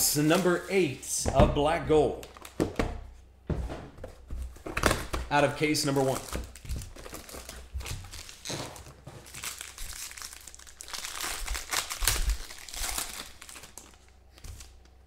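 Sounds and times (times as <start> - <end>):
foil wrapper tearing and crinkling: 6.0 - 14.8.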